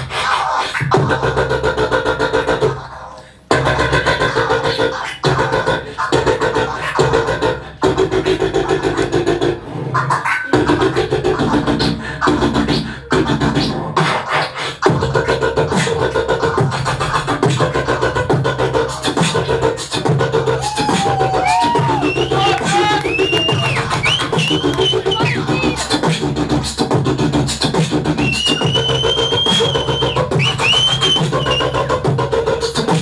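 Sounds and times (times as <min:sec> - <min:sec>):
instrumental hip hop beat: 0:10.1 - 0:33.0.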